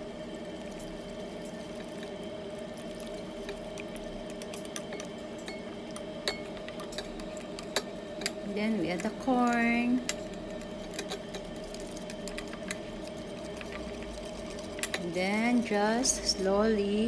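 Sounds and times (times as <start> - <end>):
steady hum: 0.0 - 17.0
whisk wires clicking on pan: 2.9 - 16.5
whisk swishing liquid: 9.6 - 16.5.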